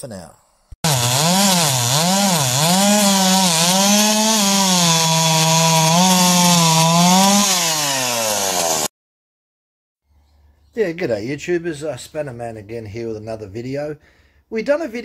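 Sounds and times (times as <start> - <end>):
chainsaw cutting log: 0.8 - 8.9.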